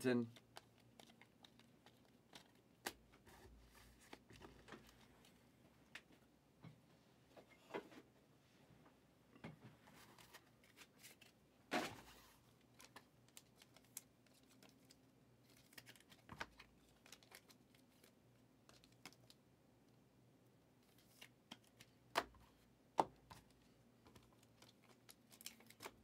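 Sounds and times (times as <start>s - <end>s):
trading cards rustling: 0.0s - 5.4s, 12.7s - 19.4s, 23.4s - 26.0s.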